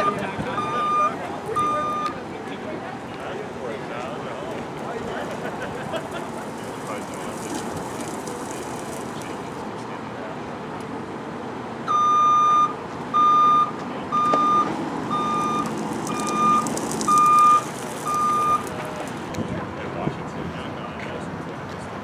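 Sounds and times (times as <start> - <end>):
reversing alarm beeping: 0.0 - 2.2, 11.9 - 18.7
truck engine running: 14.0 - 19.4.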